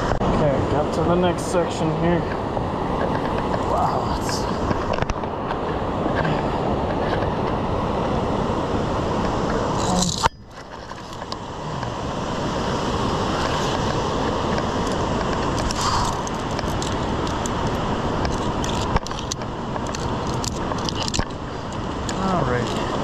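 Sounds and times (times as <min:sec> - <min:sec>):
rushing whitewater river: 0:00.0 - 0:23.0
metallic carabiner clicks: 0:18.2 - 0:21.3.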